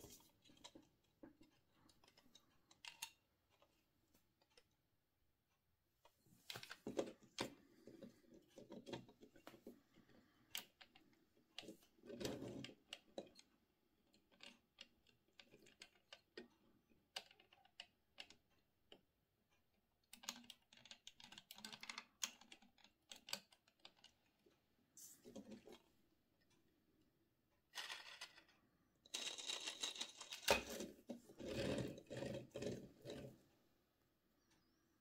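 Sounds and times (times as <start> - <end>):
plastic toy clicks and rustling: 20.1 - 24.4, 27.7 - 31.0.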